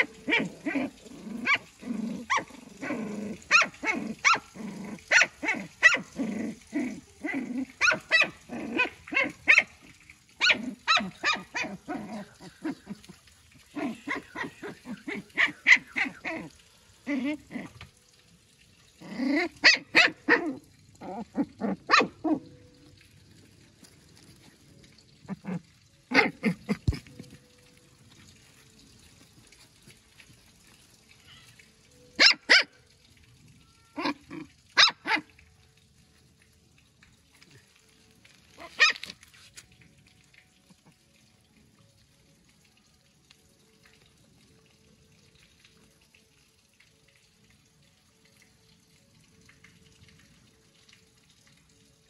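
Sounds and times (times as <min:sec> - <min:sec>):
dog barking: 0:00.0 - 0:04.5, 0:05.1 - 0:06.1, 0:07.8 - 0:09.7, 0:10.4 - 0:11.8, 0:13.8 - 0:16.3, 0:19.6 - 0:20.6, 0:21.9 - 0:22.4, 0:32.2 - 0:32.8, 0:34.8 - 0:35.3, 0:38.6 - 0:39.1.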